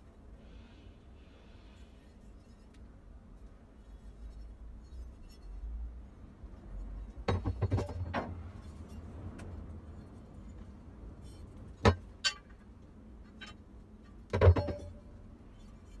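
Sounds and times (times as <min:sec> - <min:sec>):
metal pieces knocking on wood: 0:07.2 - 0:08.4, 0:11.8 - 0:12.6, 0:14.2 - 0:15.1.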